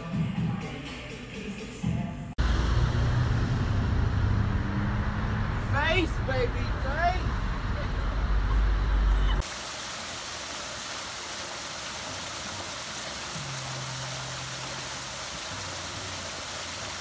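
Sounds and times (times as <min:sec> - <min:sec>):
low traffic rumble: 0:02.4 - 0:09.5
waterfall splashing into pool: 0:09.4 - 0:17.0.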